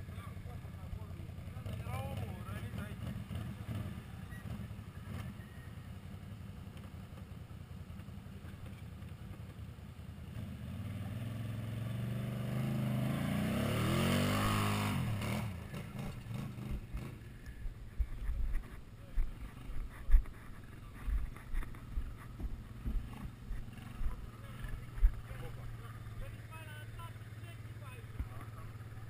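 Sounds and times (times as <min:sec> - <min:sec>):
quad bike engine revving: 0:00.0 - 0:07.2, 0:10.2 - 0:29.0
knocks and thumps: 0:18.0 - 0:24.2.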